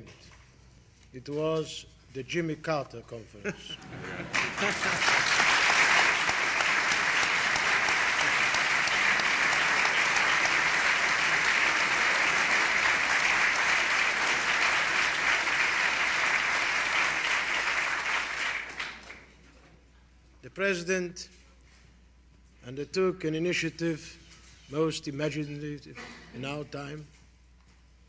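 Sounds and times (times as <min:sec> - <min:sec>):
large audience applauding: 0:03.9 - 0:19.3.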